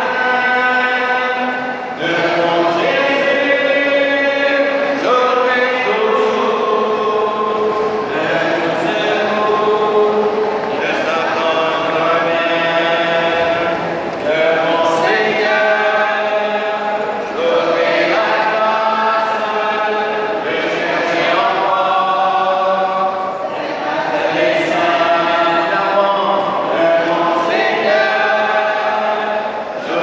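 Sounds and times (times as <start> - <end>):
congregation singing a hymn: 0.0 - 30.0.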